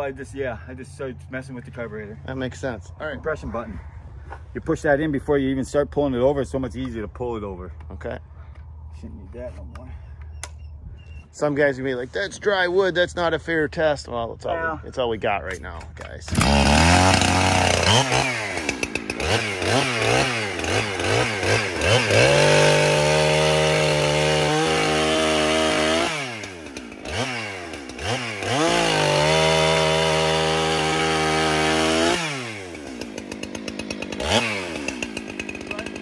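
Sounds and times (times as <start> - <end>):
chainsaw cutting dry timber: 15.6 - 36.0
chainsaw revving: 16.2 - 36.0.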